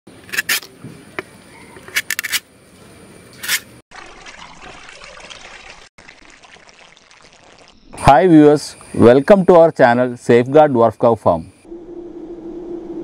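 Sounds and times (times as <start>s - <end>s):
knife scraping plant stem: 0.2s - 0.8s, 1.8s - 2.4s, 3.4s - 3.7s
liquid pouring into pot: 3.9s - 7.8s.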